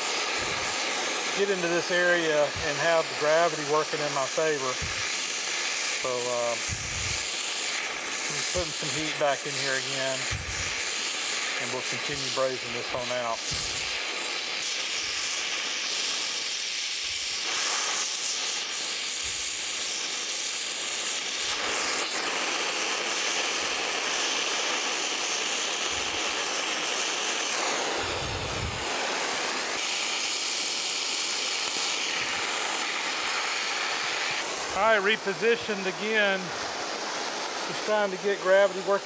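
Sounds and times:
torch flame hissing: 0.0 - 39.0.

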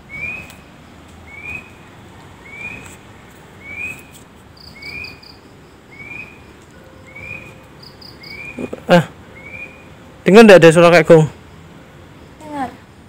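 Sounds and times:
faint background hiss: 0.0 - 13.0
animal chirping: 3.6 - 6.5, 7.1 - 10.0.

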